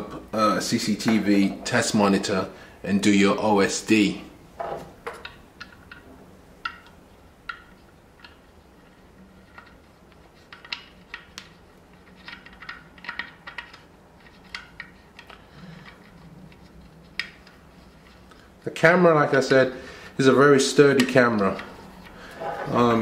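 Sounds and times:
hands clicking and tapping plastic: 0:09.6 - 0:17.6.

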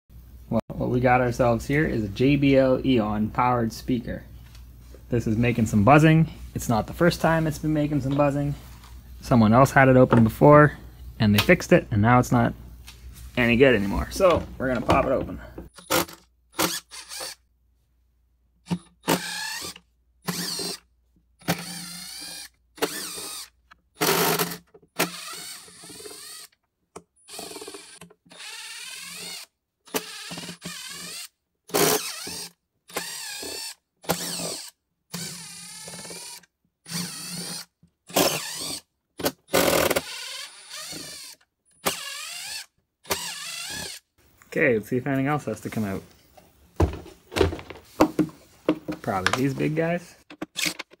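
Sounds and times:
cordless driver motor whirring: 0:15.8 - 0:17.4, 0:19.0 - 0:20.8, 0:21.4 - 0:26.5, 0:27.3 - 0:38.9, 0:39.5 - 0:44.0.

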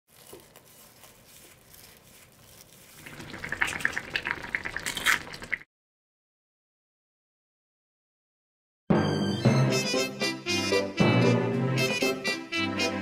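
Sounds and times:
broth bubbling and popping: 0:03.0 - 0:05.6.

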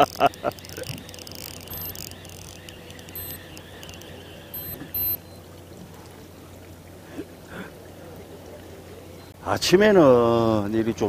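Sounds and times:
fishing reel winding: 0:00.0 - 0:05.2
steady low hum: 0:00.0 - 0:09.4
short high-pitched electronic beeps: 0:00.6 - 0:05.4.

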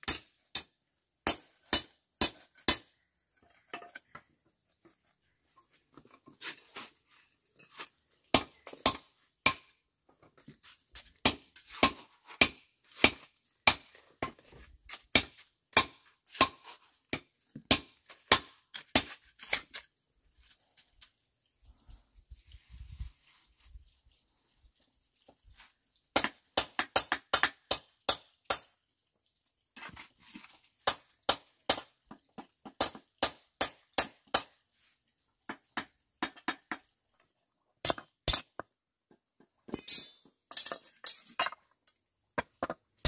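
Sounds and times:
trowel and bricks clinking: 0:01.3 - 0:04.3, 0:05.6 - 0:09.6, 0:18.3 - 0:21.0, 0:37.8 - 0:38.7, 0:39.4 - 0:43.0.

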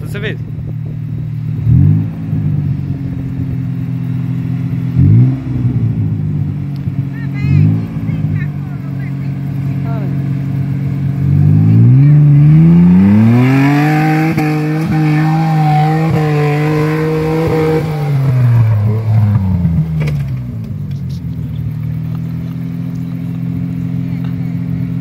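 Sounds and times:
engine revving hard: 0:01.6 - 0:02.7, 0:04.8 - 0:06.2, 0:11.0 - 0:20.2.

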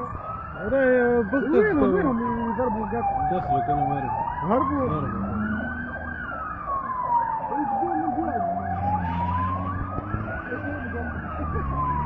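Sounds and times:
fast warbling siren: 0:00.0 - 0:12.0
siren wailing slowly: 0:00.0 - 0:12.0.

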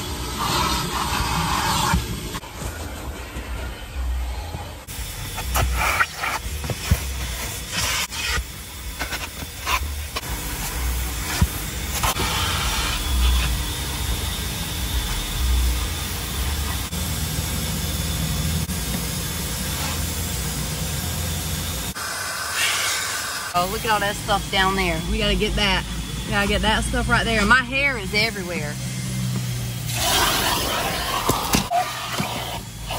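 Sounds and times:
vacuum hose rushing hiss: 0:21.9 - 0:24.7, 0:28.8 - 0:32.9.

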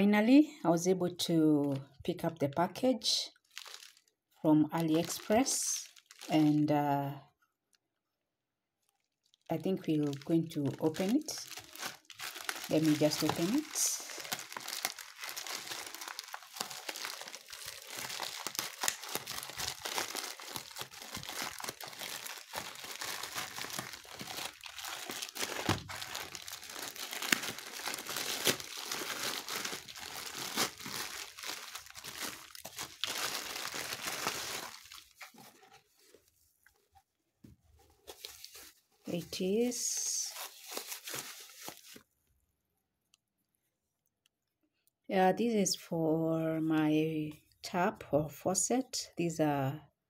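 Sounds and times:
package wrapping crinkling: 0:03.4 - 0:04.1, 0:04.8 - 0:06.4, 0:08.9 - 0:36.3, 0:37.8 - 0:42.1
wrapping tearing: 0:03.4 - 0:04.1, 0:04.8 - 0:06.4, 0:09.0 - 0:36.2, 0:39.9 - 0:42.0.

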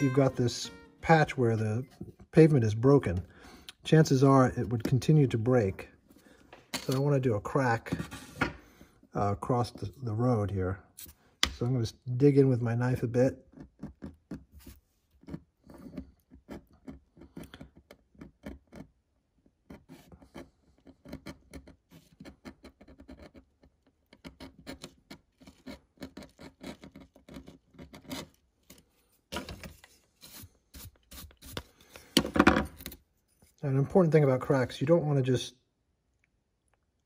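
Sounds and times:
bristle brush sweeping plaster: 0:29.9 - 0:31.9.

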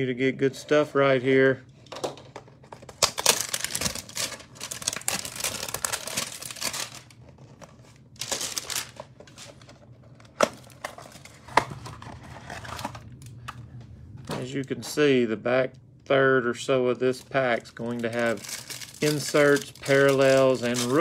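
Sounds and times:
cardboard packaging tearing: 0:02.9 - 0:09.6, 0:17.8 - 0:21.0.

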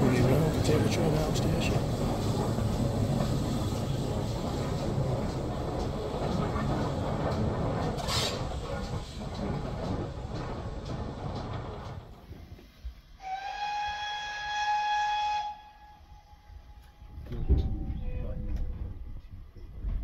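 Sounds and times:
steam train rumbling: 0:00.0 - 0:20.0
steam locomotive whistle: 0:13.2 - 0:17.0.

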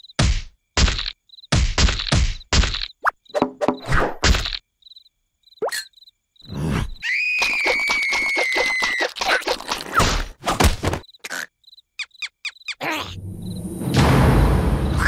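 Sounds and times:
high-pitched quavering cartoon cry: 0:06.9 - 0:09.9, 0:11.2 - 0:13.2.

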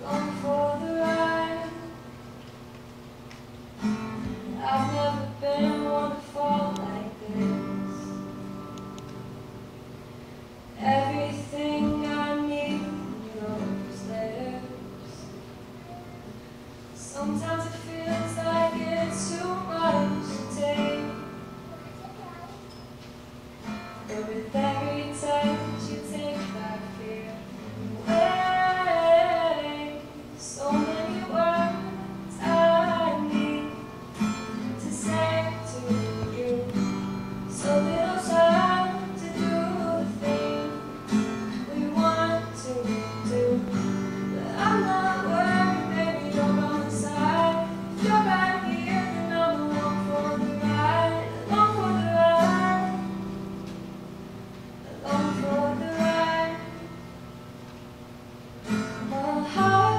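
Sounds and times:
woman singing into a microphone: 0:00.0 - 0:02.0, 0:04.5 - 0:08.2, 0:10.8 - 0:15.4, 0:17.0 - 0:21.2, 0:24.1 - 0:40.9, 0:41.5 - 0:53.3, 0:54.8 - 0:56.9, 0:59.0 - 0:59.9
acoustic guitar: 0:00.0 - 0:59.9.

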